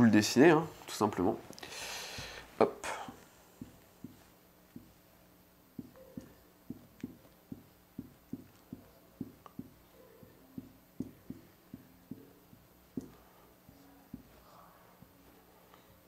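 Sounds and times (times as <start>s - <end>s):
marker tapping on whiteboard: 3.1s - 5.0s, 5.8s - 14.4s.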